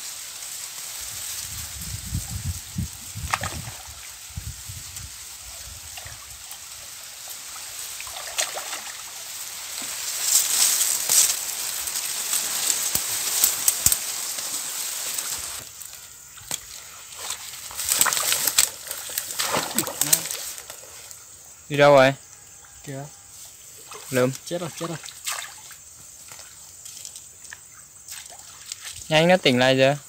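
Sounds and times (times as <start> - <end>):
water sloshing and splashing: 7.4 - 15.6, 16.4 - 21.1, 23.8 - 29.1.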